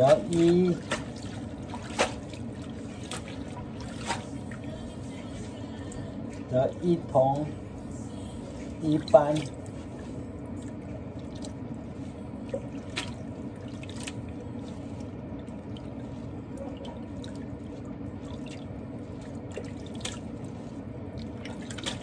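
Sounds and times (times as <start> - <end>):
water splashing: 0.0 - 5.5, 8.8 - 22.0.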